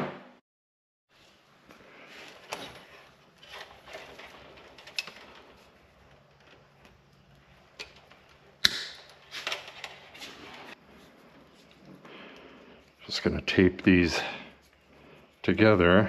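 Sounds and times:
electrical wires rustling: 1.1 - 16.0
wire cutters clicking: 7.8 - 10.0.

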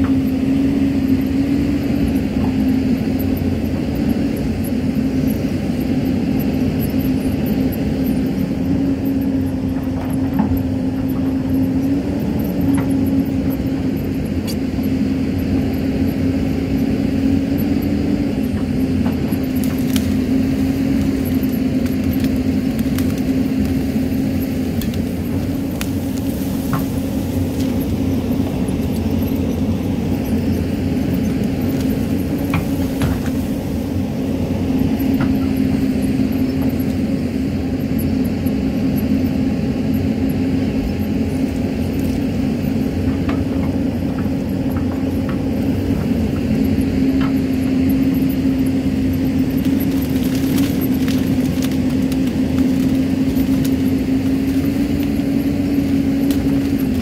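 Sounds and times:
excavator diesel engine running: 0.0 - 57.0
soil and stones ticking: 18.4 - 33.5, 43.0 - 57.0.

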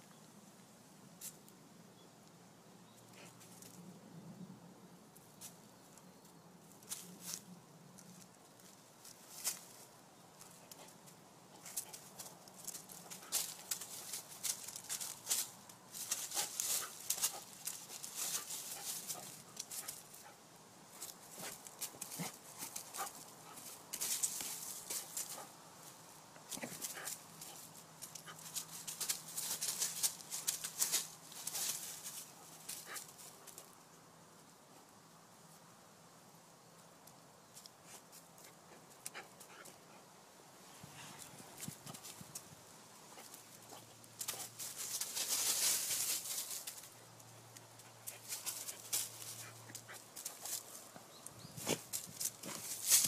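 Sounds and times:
dog scuffling in dry leaves: 8.1 - 20.3, 21.0 - 25.9, 26.5 - 33.6, 43.1 - 47.0, 47.8 - 50.8, 51.5 - 53.0.

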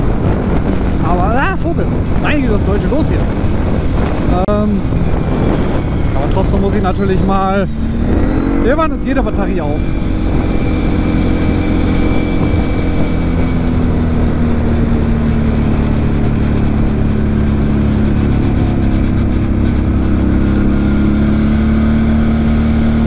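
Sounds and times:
quad bike engine running: 0.0 - 23.0.

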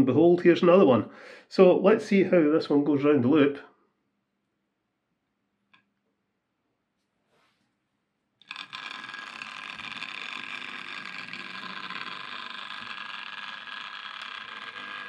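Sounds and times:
model train motor whirring: 8.4 - 15.0.

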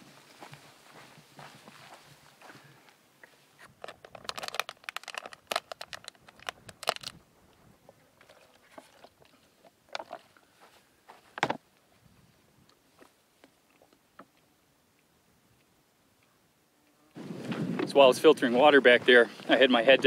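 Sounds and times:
plastic crackling: 3.8 - 7.2.

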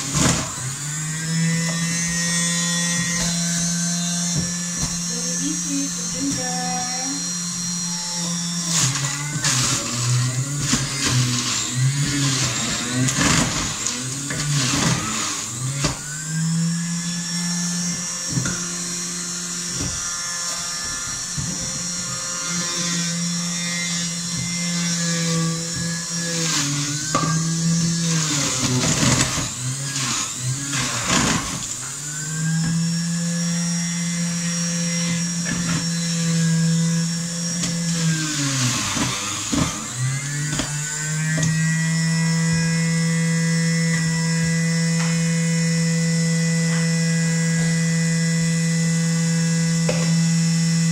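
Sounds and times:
juicer motor humming: 0.0 - 50.9
fruit grinding: 7.2 - 17.0, 24.1 - 45.3.

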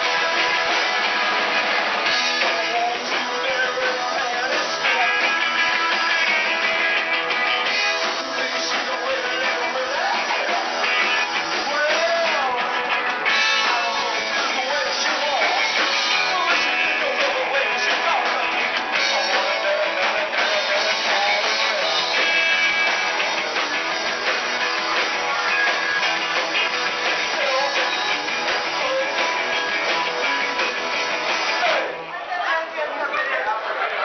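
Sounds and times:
drum kit: 0.0 - 32.0
electric guitar: 0.0 - 34.0
lead vocal singing: 2.1 - 6.4, 7.7 - 22.7, 27.0 - 30.0.

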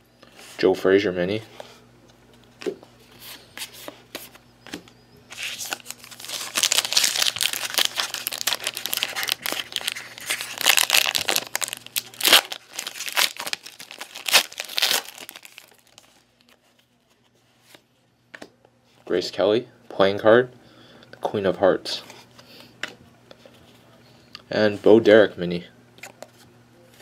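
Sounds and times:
wrapper tearing and crinkling: 5.3 - 16.6.

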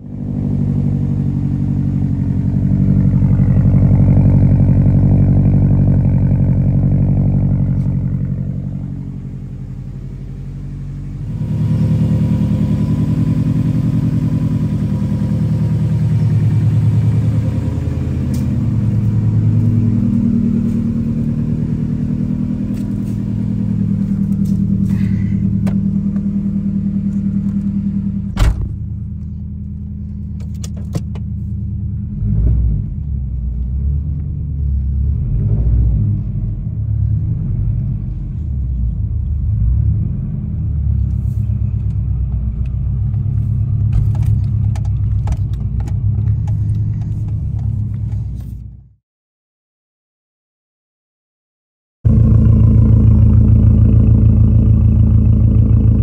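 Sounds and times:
car engine idling: 0.0 - 35.3, 36.2 - 48.9, 52.1 - 56.0
thump: 28.4 - 28.9.

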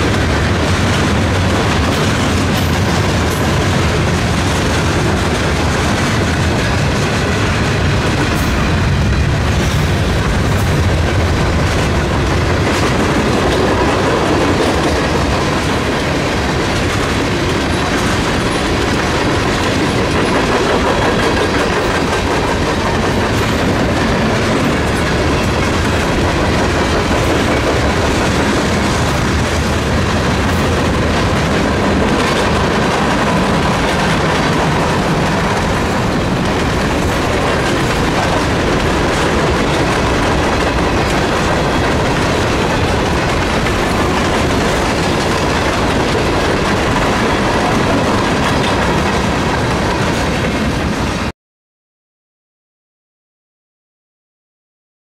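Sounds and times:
train wheels rumbling on rails: 0.0 - 51.3.

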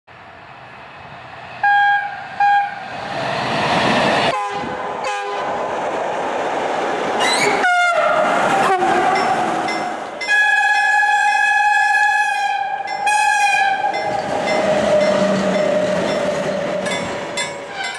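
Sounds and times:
freight train rumbling: 0.1 - 17.9
train horn: 1.6 - 2.8, 4.3 - 5.5, 7.4 - 9.6, 10.2 - 17.1.

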